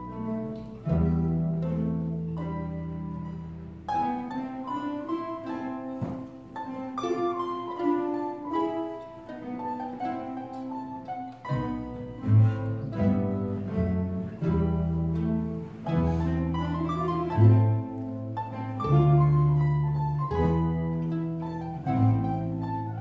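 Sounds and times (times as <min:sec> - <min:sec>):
mandolins playing melody: 0:00.0 - 0:23.0
low bass notes: 0:11.5 - 0:23.0.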